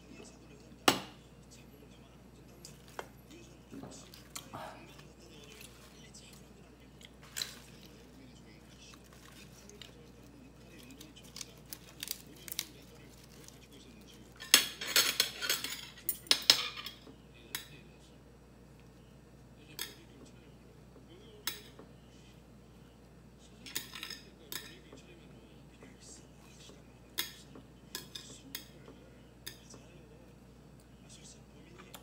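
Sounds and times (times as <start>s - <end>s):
lettuce leaves rustling: 7.2s - 14.2s.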